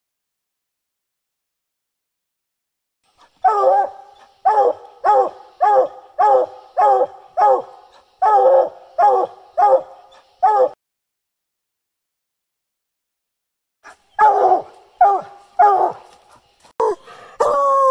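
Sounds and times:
dog barking: 0:03.4 - 0:10.8, 0:14.2 - 0:16.4.

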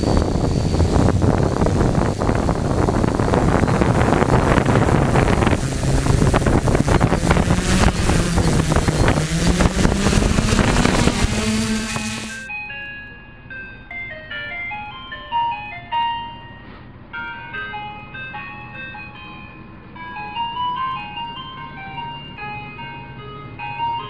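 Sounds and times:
prop wash buffeting microphone: 0:00.0 - 0:12.5
quadcopter motors humming: 0:00.0 - 0:12.5
tinkling jingle melody: 0:12.4 - 0:24.0.

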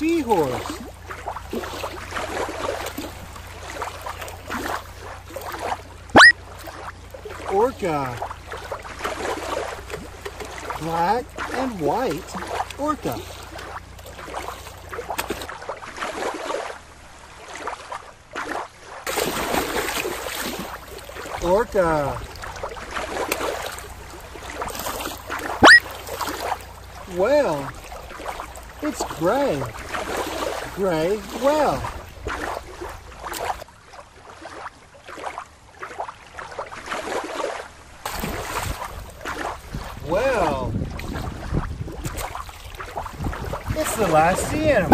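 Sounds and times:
water splashing and sloshing: 0:00.0 - 0:44.9
killer whale landing splash: 0:19.1 - 0:20.8, 0:38.1 - 0:39.8.

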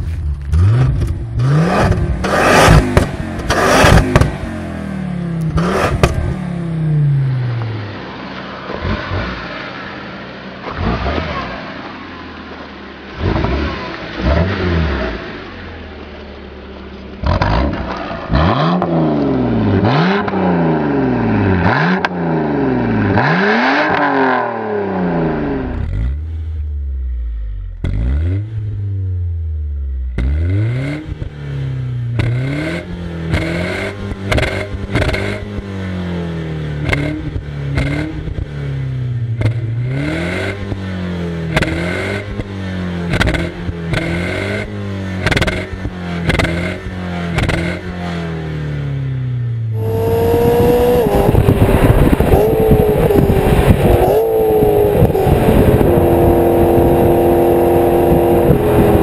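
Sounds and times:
exhaust pops and crackles: 0:00.0 - 0:04.5, 0:05.4 - 0:06.4, 0:33.2 - 0:35.7, 0:36.8 - 0:38.6, 0:39.3 - 0:39.7, 0:41.5 - 0:44.2, 0:45.2 - 0:48.0, 0:50.3 - 0:57.2
car engine quick revs: 0:00.0 - 0:04.7, 0:05.5 - 0:07.6, 0:49.8 - 0:59.0
car engine revving: 0:00.0 - 0:59.0.

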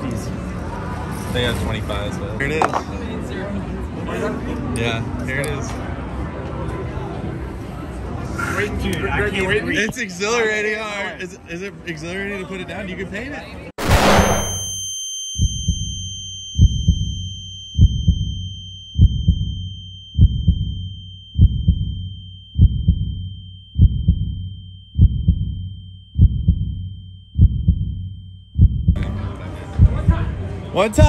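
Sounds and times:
noisy sound: 0:13.8 - 0:15.0
steady high ringing tone: 0:13.8 - 0:29.0
heartbeat double thuds: 0:15.4 - 0:16.0, 0:16.6 - 0:17.2, 0:17.8 - 0:18.4, 0:19.0 - 0:29.0, 0:29.8 - 0:30.3.

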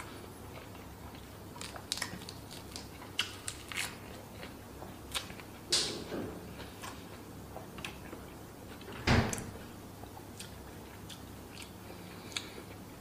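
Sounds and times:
person chewing food: 0:00.0 - 0:05.7, 0:06.5 - 0:13.0.

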